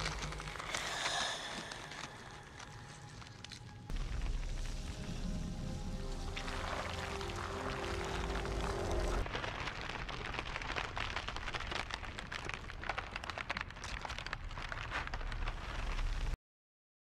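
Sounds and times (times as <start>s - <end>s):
low rumble: 0.0s - 9.5s
dense crackling and crumbling: 0.0s - 16.4s.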